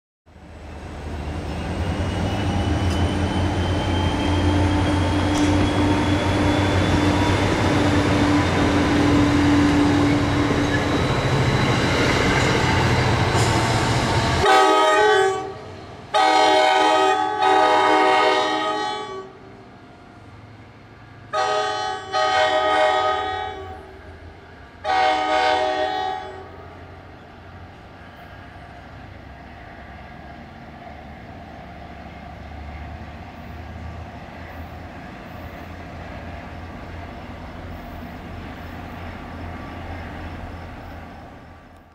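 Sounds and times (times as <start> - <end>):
train rumbling past: 0.3 - 41.9
train horn blasts: 14.4 - 19.4, 21.3 - 23.9, 24.8 - 26.7.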